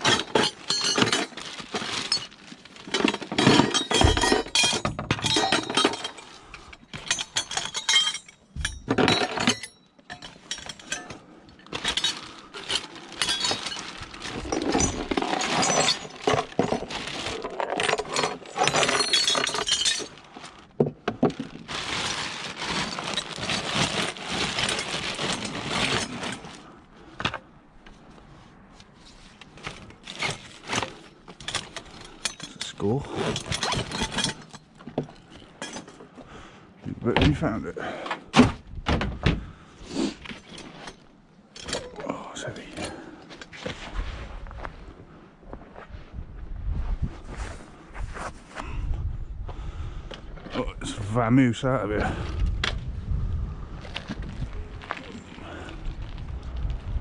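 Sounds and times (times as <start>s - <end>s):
scrap metal and glass clattering: 0.0s - 20.5s, 21.6s - 26.6s, 29.6s - 36.0s.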